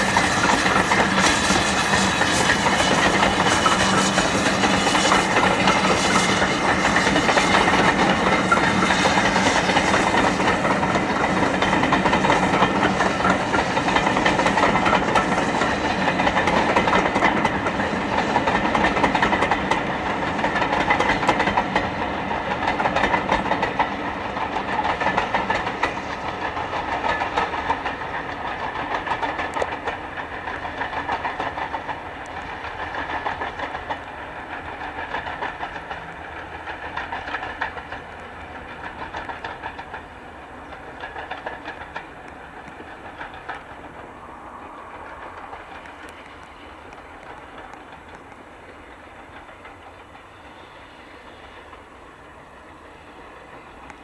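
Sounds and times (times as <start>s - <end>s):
steam train passing: 0.0s - 54.0s.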